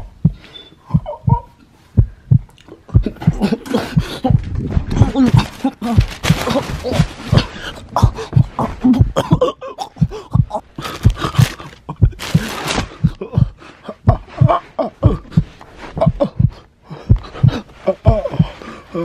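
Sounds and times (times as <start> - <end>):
knocks and handling thumps: 2.0 - 9.4, 10.0 - 16.2
huffing breath: 2.0 - 19.0
rustling: 4.4 - 9.0, 10.7 - 13.2.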